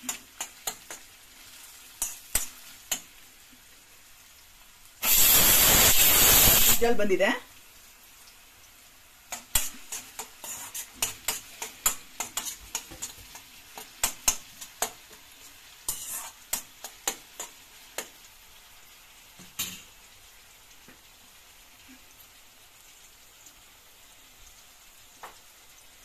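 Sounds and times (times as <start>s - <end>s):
onions sizzling in oil: 0.0s - 26.0s
spoon scraping a steel pan: 9.6s - 14.7s, 15.9s - 17.5s.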